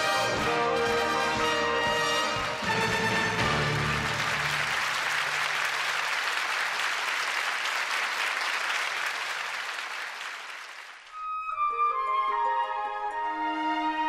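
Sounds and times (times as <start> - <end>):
audience applauding: 1.9 - 11.2
soft music with held tones: 11.2 - 14.0.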